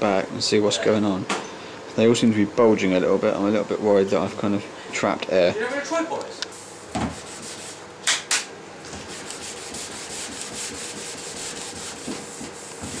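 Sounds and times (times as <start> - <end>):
hand sanding strokes: 7.1 - 7.8, 8.9 - 13.0.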